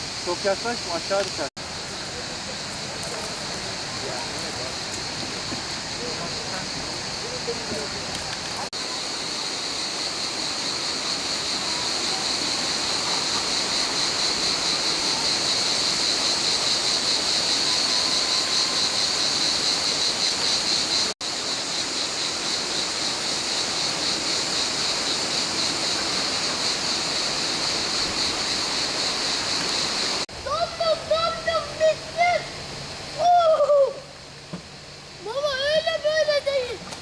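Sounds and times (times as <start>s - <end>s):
cicadas droning: 0.0s - 37.0s
rushing hiss: 0.0s - 37.0s.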